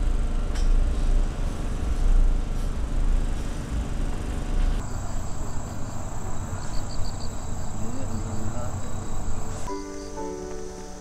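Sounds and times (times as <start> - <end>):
insect buzzing trill: 4.8 - 11.0.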